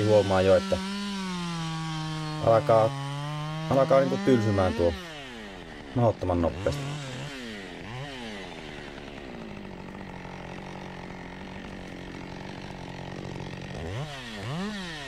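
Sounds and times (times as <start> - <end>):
chainsaw cutting log: 0.0 - 15.0.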